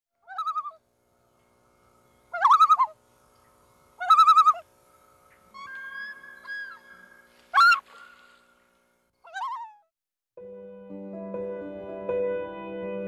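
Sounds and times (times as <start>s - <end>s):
bird trilled calls: 0.2s - 0.8s, 2.3s - 8.5s, 9.2s - 9.8s
bird whistled call: 2.4s - 3.0s, 4.0s - 4.6s, 5.5s - 8.3s.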